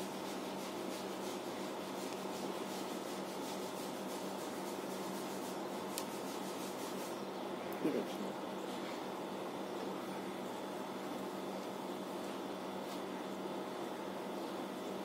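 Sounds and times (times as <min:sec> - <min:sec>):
hair rustling: 0:00.0 - 0:07.2
steady low hum: 0:00.0 - 0:15.0.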